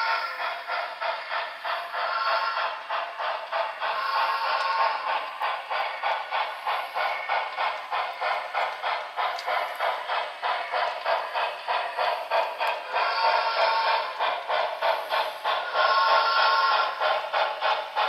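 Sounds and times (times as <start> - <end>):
steam exhaust chuffs: 0.0 - 18.0.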